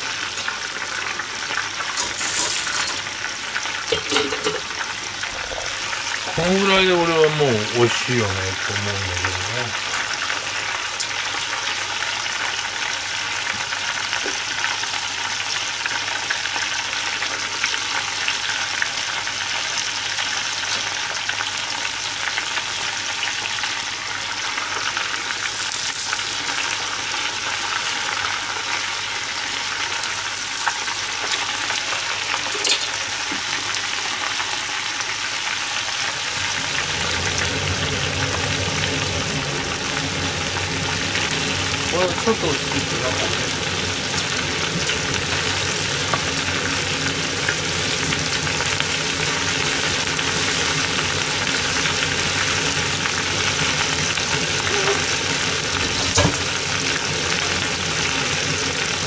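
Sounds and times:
oil sizzling in deep-frying pot: 0:00.0 - 0:59.0
low hum: 0:36.2 - 0:41.9.

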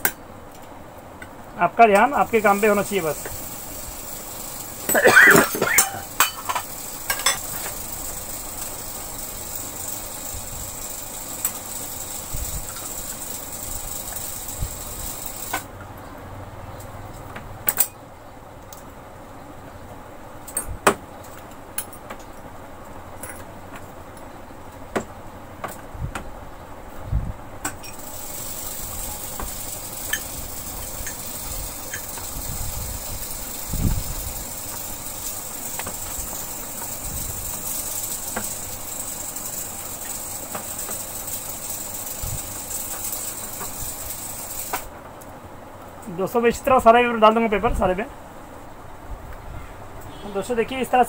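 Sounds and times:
steady hiss: 0:01.4 - 0:15.7, 0:27.9 - 0:45.0.

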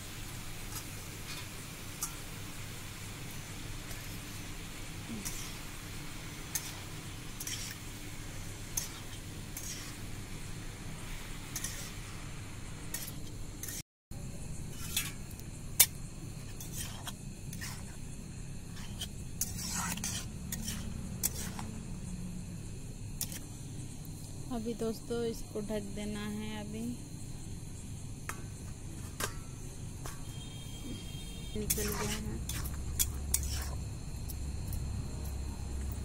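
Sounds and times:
metal spatula scraping a pan: 0:05.1 - 0:10.2, 0:11.5 - 0:12.1, 0:12.9 - 0:13.8, 0:14.6 - 0:15.9, 0:16.5 - 0:18.0, 0:18.7 - 0:21.8, 0:31.6 - 0:33.8.

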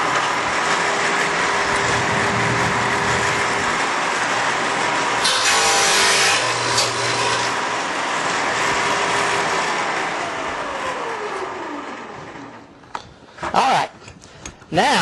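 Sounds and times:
saw motor whine winding down: 0:00.3 - 0:12.7.

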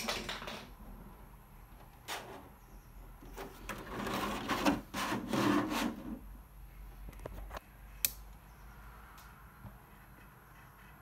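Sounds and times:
plastic rubbing and scraping: 0:03.2 - 0:06.3.

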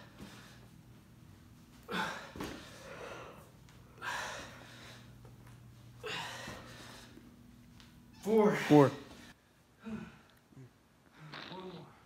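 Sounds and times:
man breathing heavily: 0:00.0 - 0:01.1, 0:01.7 - 0:07.5, 0:09.0 - 0:11.2.

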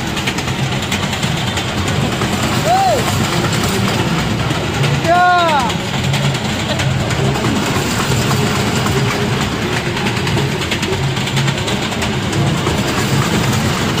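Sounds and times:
train low rumble: 0:00.0 - 0:14.0
wheels clattering on rails: 0:00.0 - 0:14.0.

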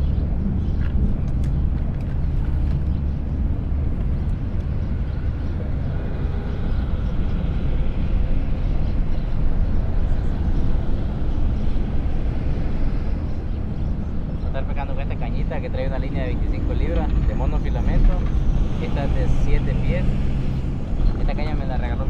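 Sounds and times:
traffic rumble overhead: 0:00.0 - 0:22.0.

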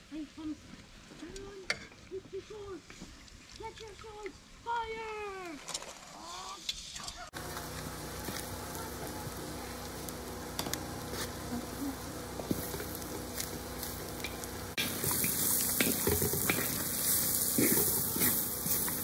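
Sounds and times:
meat and onions sizzling in a wok: 0:07.3 - 0:19.0
wooden spatula scraping metal: 0:12.3 - 0:19.0.

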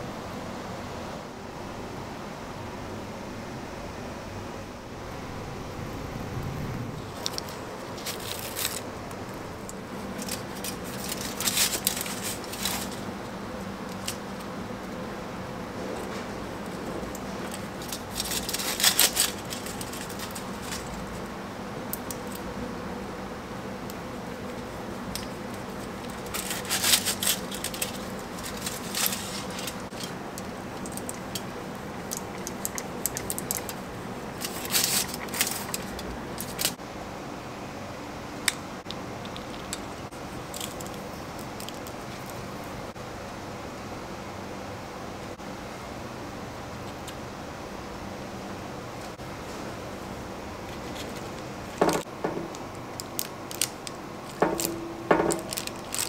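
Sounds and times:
faint steady hum: 0:00.0 - 0:56.0
aluminium foil crinkling: 0:07.0 - 0:15.1, 0:15.8 - 0:22.5, 0:23.9 - 0:36.8, 0:39.2 - 0:42.6, 0:50.6 - 0:56.0.

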